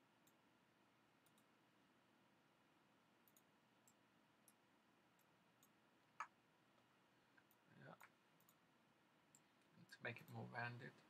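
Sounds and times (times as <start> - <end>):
computer mouse clicks: 1.2 - 1.5, 3.2 - 4.6, 5.2 - 6.4, 7.4 - 8.6.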